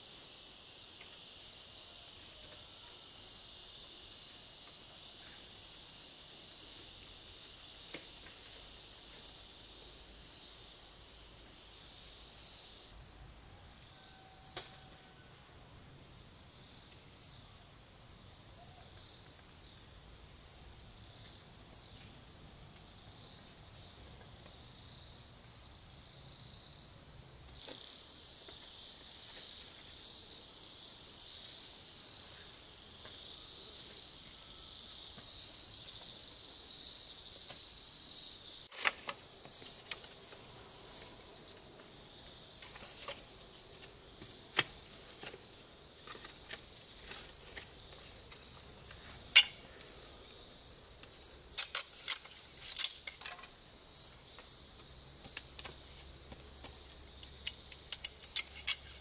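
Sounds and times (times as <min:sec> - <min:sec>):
insects trilling: 0:00.0 - 0:15.5, 0:16.4 - 0:17.6, 0:18.2 - 0:59.0.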